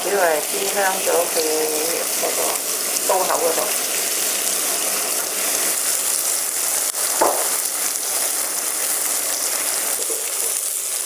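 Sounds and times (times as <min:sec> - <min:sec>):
mushrooms sizzling in oil: 0:00.0 - 0:11.0
brief knock: 0:07.2 - 0:07.6.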